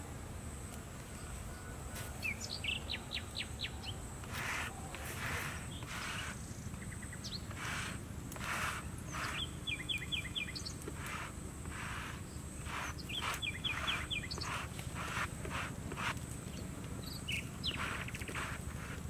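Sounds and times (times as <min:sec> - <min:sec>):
bird chirping: 0:01.2 - 0:15.3, 0:16.4 - 0:18.6
stalks brushing over wet stone: 0:04.2 - 0:06.4, 0:07.5 - 0:16.6, 0:17.4 - 0:19.0.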